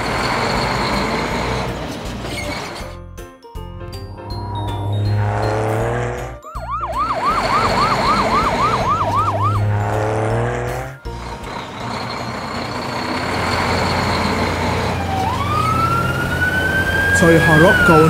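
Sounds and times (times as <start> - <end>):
low engine hum: 3.9 - 18.0
noisy vehicle hum: 4.0 - 18.0
cartoon siren yelping: 6.5 - 9.7, 15.2 - 18.0.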